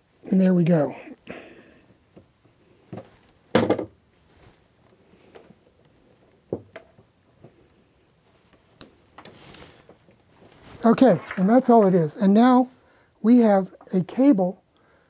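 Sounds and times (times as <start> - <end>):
knock on wooden panel: 3.6 - 3.9.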